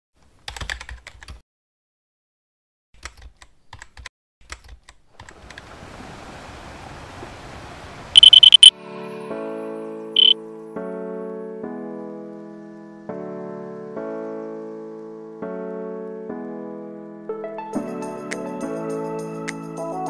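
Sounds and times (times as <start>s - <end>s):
high-pitched electronic glitch buzz: 8.2s - 8.7s
keyboard typing clicks: 8.2s - 8.7s.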